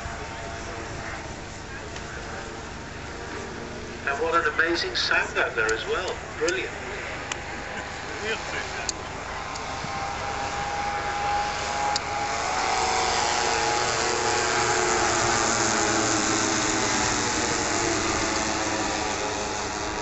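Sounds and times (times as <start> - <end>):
propeller aircraft engines droning: 0.0 - 20.0.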